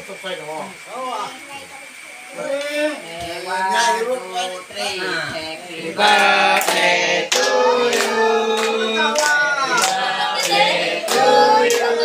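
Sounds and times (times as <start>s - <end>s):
group of voices singing: 3.0s - 12.0s
hands clapping in time: 6.0s - 11.9s.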